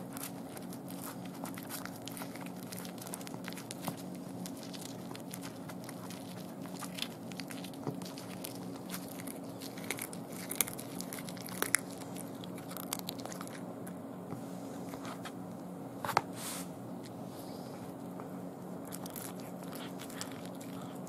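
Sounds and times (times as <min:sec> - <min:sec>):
cat crunching and chewing: 0:00.0 - 0:15.8, 0:17.9 - 0:21.0
small bones snapping: 0:00.1 - 0:14.0.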